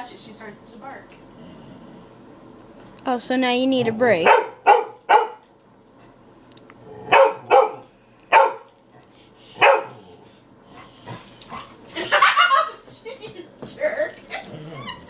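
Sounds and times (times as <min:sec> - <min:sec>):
dog barking: 0:04.2 - 0:05.4, 0:07.1 - 0:08.7, 0:09.6 - 0:10.0.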